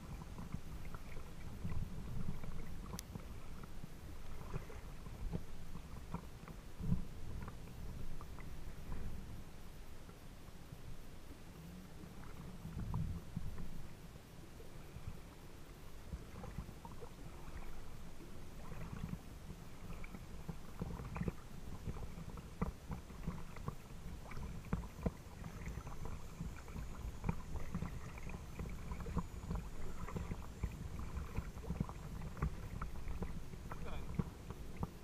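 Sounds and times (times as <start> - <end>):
steady low rumble: 0.0 - 35.0
water lapping against boat hull: 0.0 - 35.0.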